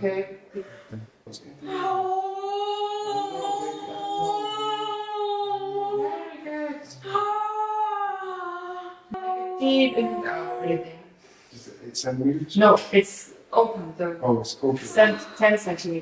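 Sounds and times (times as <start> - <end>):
woman moaning: 1.6 - 11.1, 14.9 - 15.6.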